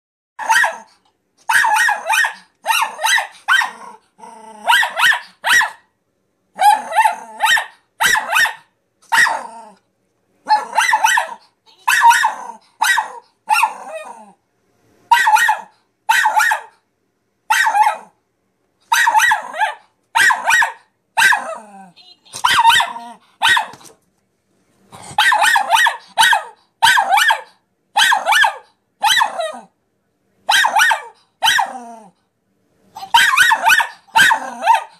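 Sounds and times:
small dog barking: 0.4 - 3.8, 4.6 - 5.9, 6.5 - 9.5, 10.4 - 14.0, 15.1 - 16.8, 17.5 - 18.2, 18.9 - 21.7, 22.4 - 23.8, 25.2 - 29.7, 30.4 - 31.8, 33.0 - 34.9.

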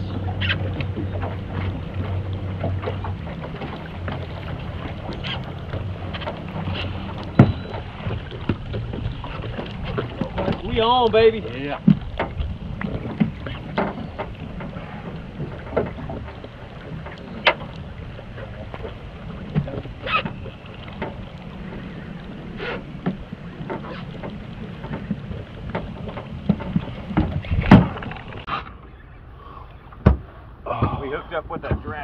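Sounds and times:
wind rumble on microphone: 0.0 - 28.6
fishing gear knocking in boat: 0.4 - 17.7, 23.0 - 28.3, 30.0 - 32.0.

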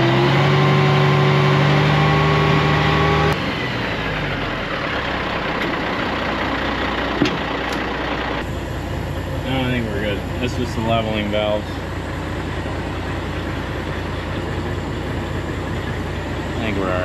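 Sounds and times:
diesel engine idling: 3.3 - 17.0
hydraulic hoist humming: 5.0 - 17.0.

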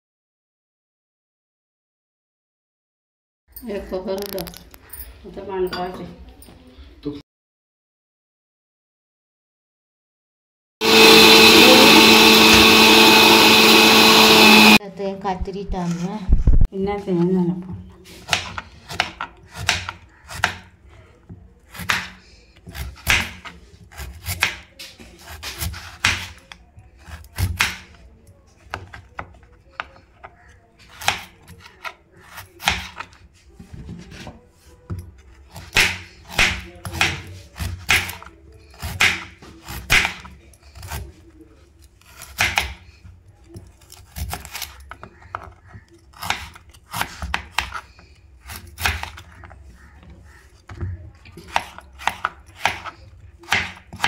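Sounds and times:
knife cutting on plastic board: 18.1 - 20.7, 21.6 - 28.0, 28.6 - 54.0.

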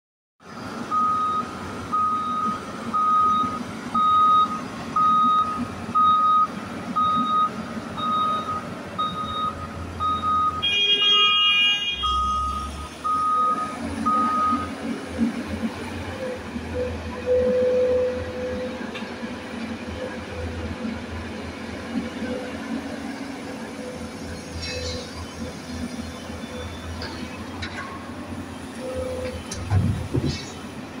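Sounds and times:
backup alarm beeping: 0.9 - 10.7, 12.0 - 14.7
horn-like tone: 10.6 - 12.7.

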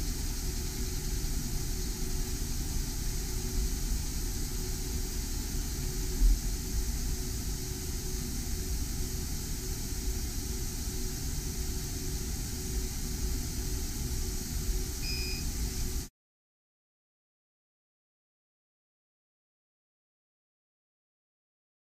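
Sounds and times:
laser engraver humming and hissing: 0.0 - 16.1
short high beep: 15.0 - 15.5.

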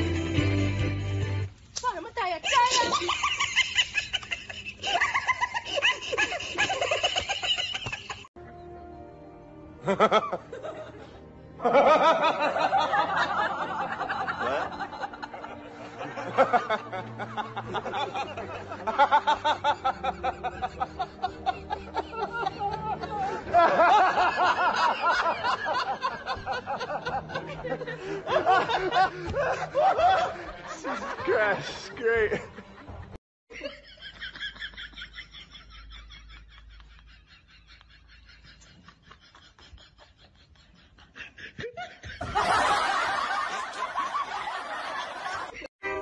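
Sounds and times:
soft sustained music notes: 8.4 - 33.0
man laughing: 11.7 - 32.8.

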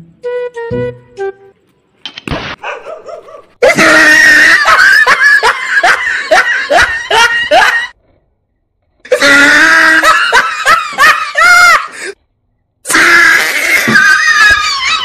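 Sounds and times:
shrieking comic laughter: 3.6 - 8.0, 9.1 - 12.2, 12.9 - 15.0.

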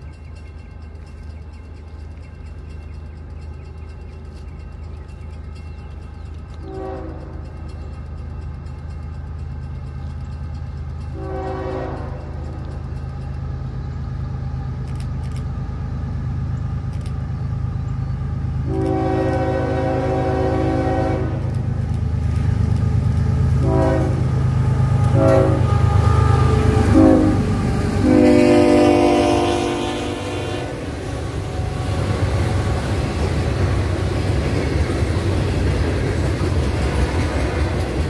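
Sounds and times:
locomotive engine rumble: 0.0 - 38.0
locomotive air horn blasts: 6.6 - 7.4, 11.2 - 12.5, 18.7 - 21.5, 23.6 - 24.4, 25.0 - 32.3.

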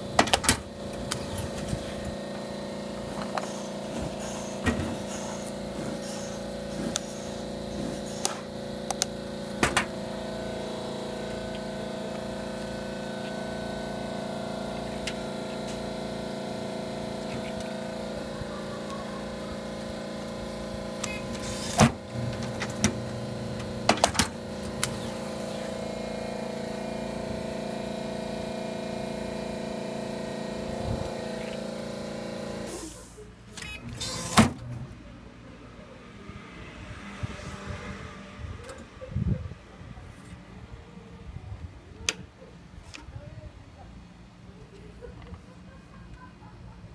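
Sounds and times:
strapping machine humming: 0.0 - 35.0.

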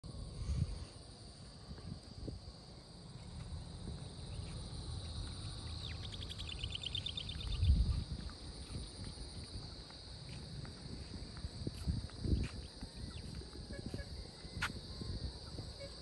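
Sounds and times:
insect chorus: 0.0 - 16.0
bird whistle and trill: 5.6 - 7.9.

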